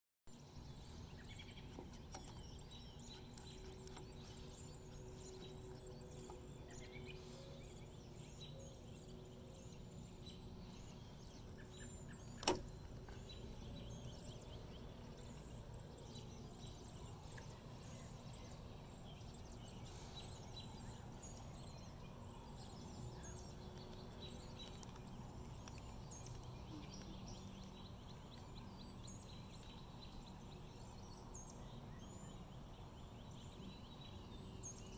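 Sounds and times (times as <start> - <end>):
faint outdoor background noise: 0.3 - 34.9.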